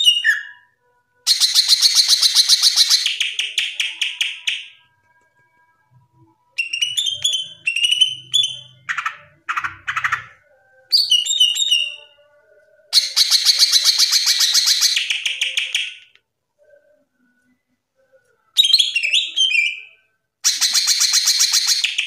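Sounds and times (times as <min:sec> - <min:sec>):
bird trilling and whistling: 0:01.3 - 0:04.8, 0:06.6 - 0:12.1, 0:12.9 - 0:16.1, 0:18.6 - 0:22.0.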